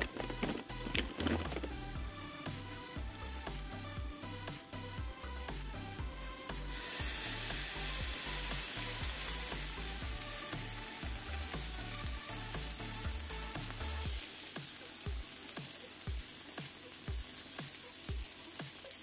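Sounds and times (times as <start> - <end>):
food sizzling in waffle maker: 0.0 - 4.7, 6.5 - 19.0
background music with bass: 0.0 - 14.2.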